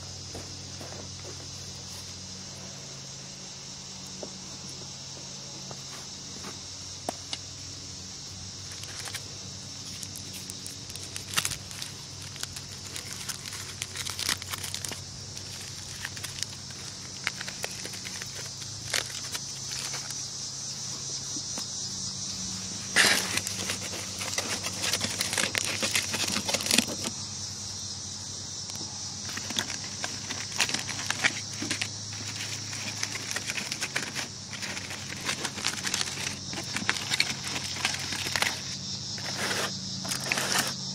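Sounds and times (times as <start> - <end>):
high-pitched insect chirring: 6.2 - 40.9
small crackles and clicks: 9.8 - 20.2.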